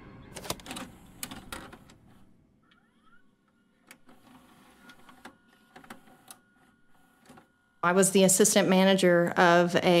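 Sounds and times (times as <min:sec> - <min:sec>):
vcr mechanical clicks and clunks: 0:00.3 - 0:07.5.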